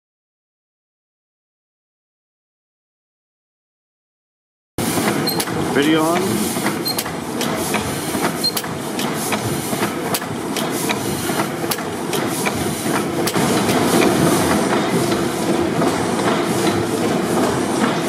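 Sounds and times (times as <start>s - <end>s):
gas engine clattering: 4.9s - 18.0s.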